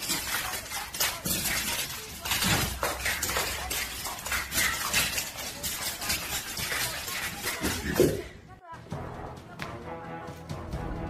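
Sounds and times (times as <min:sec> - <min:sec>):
claws clattering on marble floor: 0:00.0 - 0:08.2.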